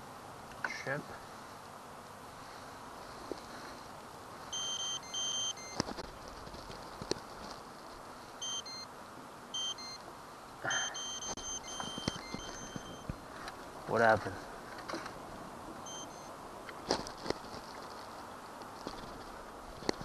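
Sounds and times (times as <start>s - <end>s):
electronic beeps: 4.5s - 5.8s, 8.4s - 8.9s, 9.6s - 10.0s, 10.7s - 13.2s, 15.8s - 16.3s.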